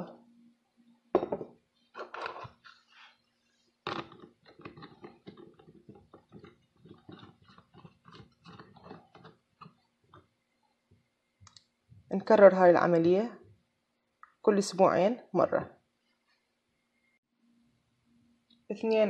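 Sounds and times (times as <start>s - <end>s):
plastic spray bottle crackling: 3.9s - 9.8s.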